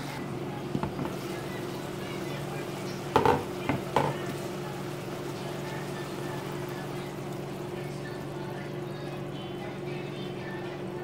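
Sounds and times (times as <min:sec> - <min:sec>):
stew simmering and sizzling: 0:00.0 - 0:11.0
cookware knocks: 0:03.1 - 0:04.2.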